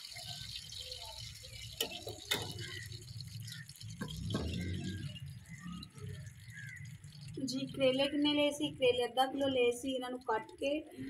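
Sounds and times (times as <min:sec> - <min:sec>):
meat sizzling in pot: 0:00.0 - 0:08.2.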